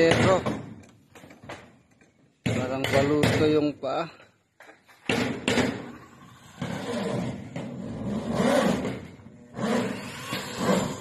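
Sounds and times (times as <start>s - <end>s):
power drill driving screws into metal: 8.6s - 11.0s.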